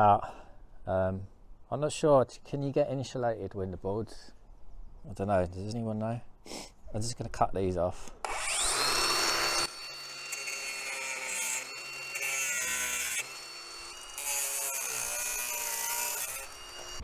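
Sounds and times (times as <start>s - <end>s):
angle grinder cutting metal: 8.2s - 17.0s.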